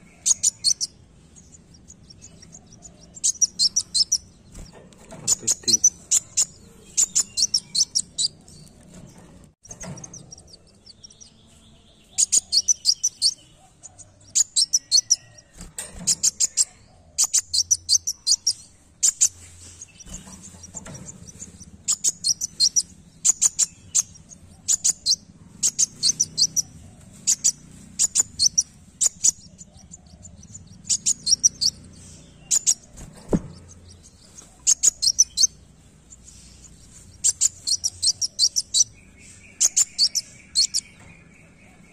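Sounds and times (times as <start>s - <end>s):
sunbird high thin chirps: 0.1s - 4.7s, 5.3s - 8.7s, 21.5s - 29.7s, 30.4s - 41.1s.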